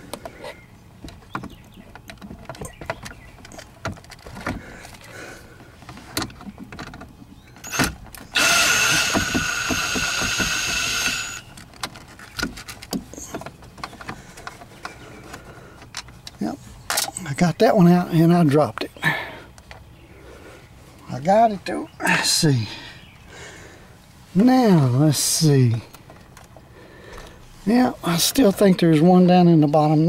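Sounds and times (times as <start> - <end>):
handling clicks and knocks: 0.0 - 8.4, 11.5 - 17.6
cordless drill whining: 7.6 - 11.5.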